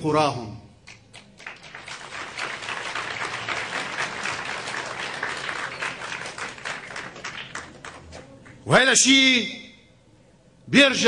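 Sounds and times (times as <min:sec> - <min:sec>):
audience applauding: 0:00.9 - 0:08.6.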